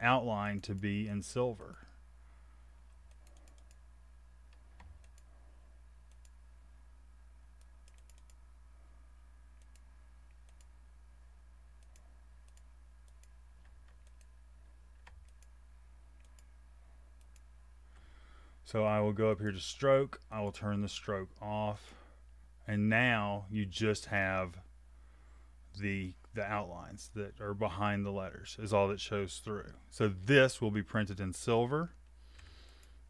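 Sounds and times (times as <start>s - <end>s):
low electrical hum: 0.0s - 33.0s
mouse and keyboard clicks: 7.6s - 8.4s.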